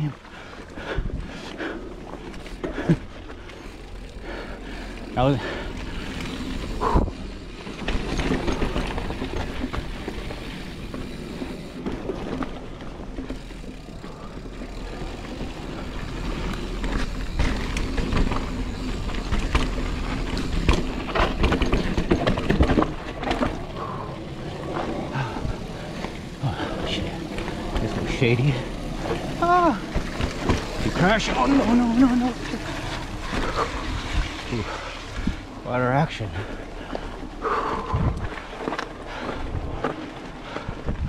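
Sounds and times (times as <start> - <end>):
bike tyres rolling over rock: 0.0 - 41.0
bike knocks and rattles: 5.2 - 24.0, 24.6 - 34.4
wind rumble on microphone: 37.4 - 38.5, 40.6 - 41.0.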